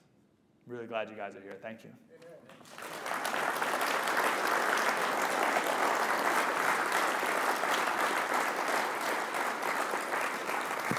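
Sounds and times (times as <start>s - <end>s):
audience applauding: 2.5s - 10.9s.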